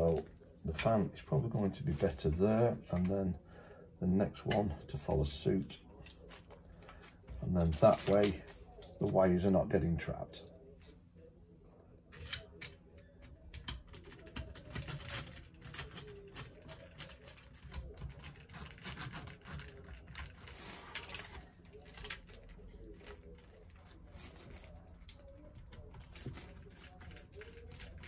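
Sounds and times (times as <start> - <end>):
plastic crinkling: 6.0 - 9.2, 14.6 - 28.0
plastic fan frames clicking: 13.5 - 28.0.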